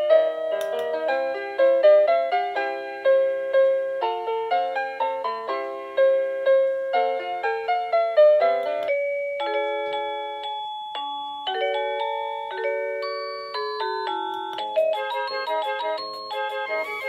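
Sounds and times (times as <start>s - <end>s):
electronic doorbell chime melody: 8.8s - 17.0s.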